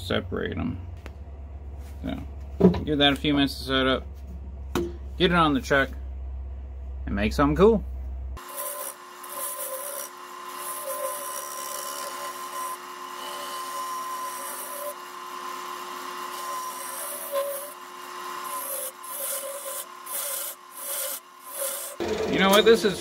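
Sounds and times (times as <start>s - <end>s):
tool scraping wood: 8.4s - 22.8s
wood lathe whine: 8.4s - 23.0s.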